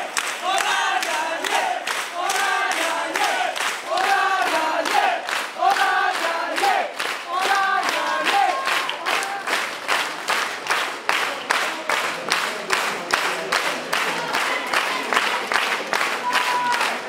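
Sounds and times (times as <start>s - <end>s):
voices chanting: 0.0s - 9.4s
crowd clapping in unison: 0.0s - 17.0s.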